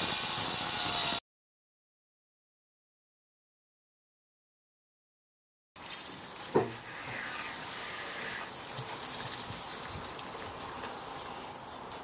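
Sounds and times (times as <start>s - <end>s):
water spraying on brickwork: 5.8s - 12.0s.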